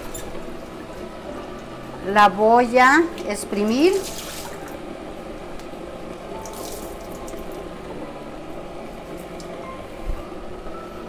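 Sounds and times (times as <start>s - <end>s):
water splashing into a metal sink: 3.9s - 4.8s, 6.4s - 7.2s.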